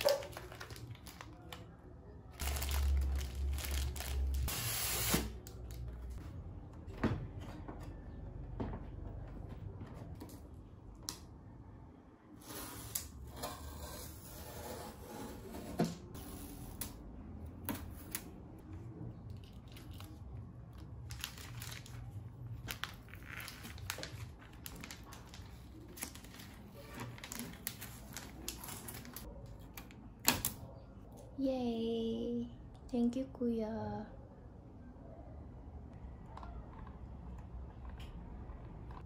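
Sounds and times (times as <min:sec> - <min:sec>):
plastic film crinkling and rustling: 0:00.0 - 0:01.7, 0:02.3 - 0:06.2, 0:19.3 - 0:30.0.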